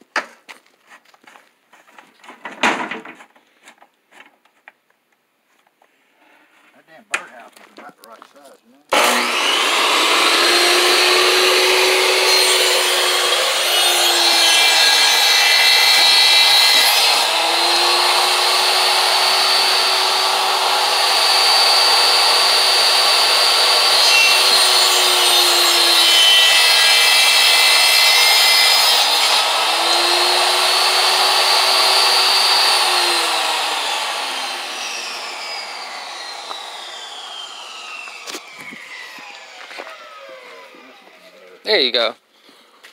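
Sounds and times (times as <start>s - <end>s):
saw ripping a panel: 8.9s - 41.1s
table saw whining: 8.9s - 41.6s.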